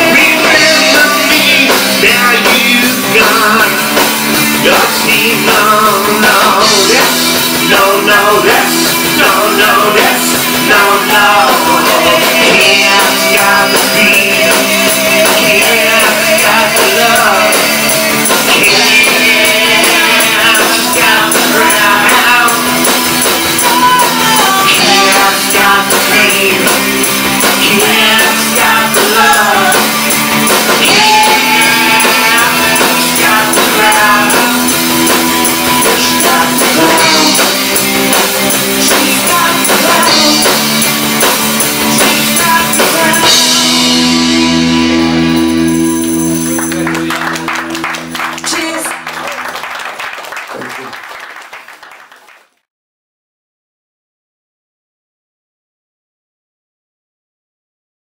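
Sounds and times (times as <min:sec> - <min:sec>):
live rock band playing: 0:00.0 - 0:51.9
tambourine: 0:11.4 - 0:43.9, 0:44.9 - 0:47.2.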